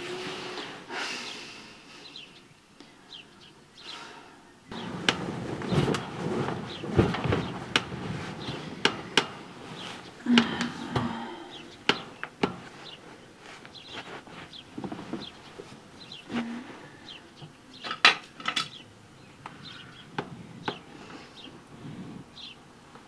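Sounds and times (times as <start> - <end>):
birds chirping: 0.0 - 22.8
knocks and clicks from bed: 4.7 - 13.0
bedclothes rustling: 4.7 - 17.9, 19.6 - 23.0.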